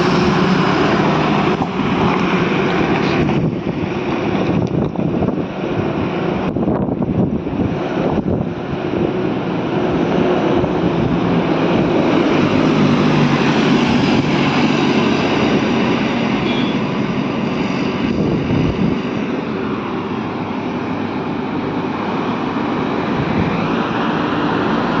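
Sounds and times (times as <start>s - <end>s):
trucks passing on highway: 0.0s - 25.0s.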